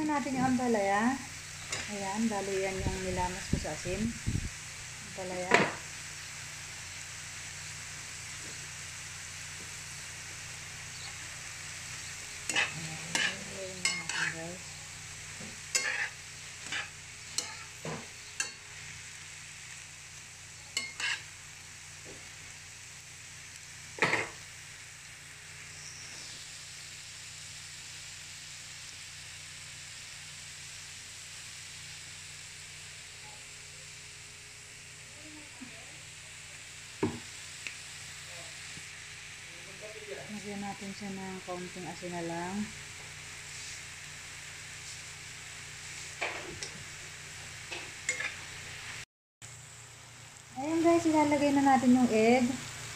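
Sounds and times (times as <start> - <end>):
vegetables sizzling in a frying pan: 0.0 - 52.9
metal spatula scraping a pan: 12.4 - 14.6, 15.4 - 18.6, 20.7 - 21.3, 48.1 - 48.4.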